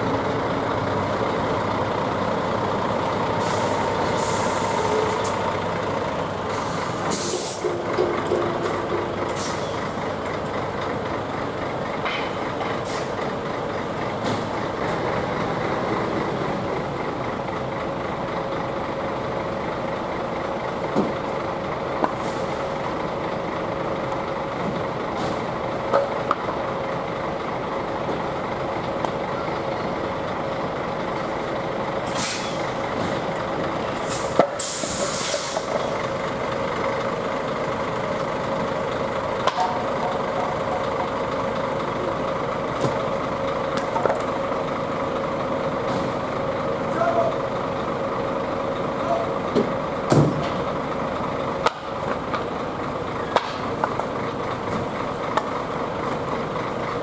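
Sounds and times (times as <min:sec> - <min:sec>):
truck diesel engines idling: 0:00.0 - 0:57.0
air-brake hisses: 0:06.5 - 0:07.8, 0:32.1 - 0:32.7, 0:34.0 - 0:35.8.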